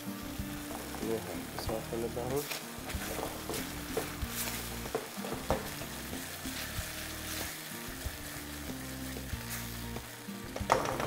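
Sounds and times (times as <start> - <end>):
sauce sizzling in a hot pan: 0.0 - 11.0.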